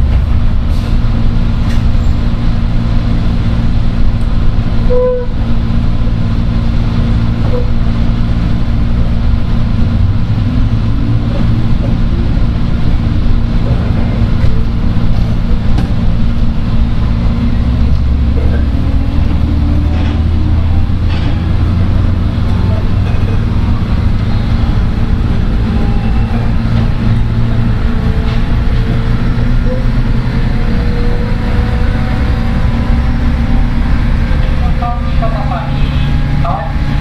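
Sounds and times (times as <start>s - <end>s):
train motor and wheels rumbling: 0.0s - 37.0s
brief tone: 4.9s - 5.3s.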